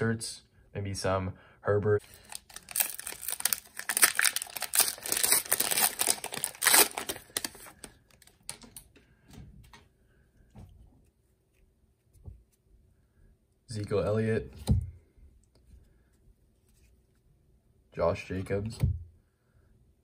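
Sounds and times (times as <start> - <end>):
cellophane wrapper crinkling: 2.0 - 8.9.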